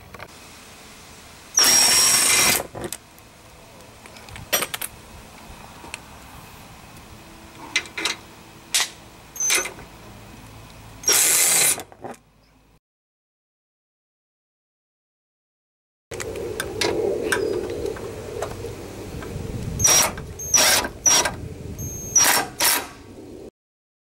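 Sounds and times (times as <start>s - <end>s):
cordless power driver whining: 1.6s - 2.9s, 19.2s - 22.8s.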